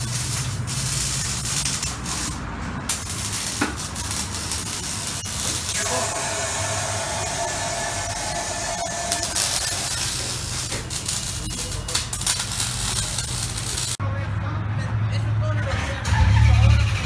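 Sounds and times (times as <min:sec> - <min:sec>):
steady high tone: 0:04.8 - 0:13.6.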